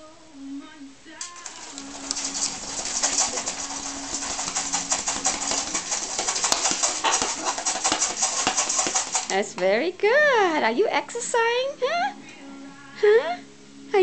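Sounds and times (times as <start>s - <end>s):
bird wings flapping: 1.2s - 9.7s.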